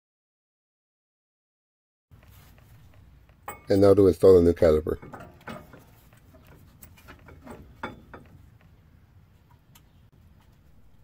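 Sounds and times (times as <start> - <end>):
faint metallic clicks and knocks: 2.2 - 3.8, 5.0 - 8.8.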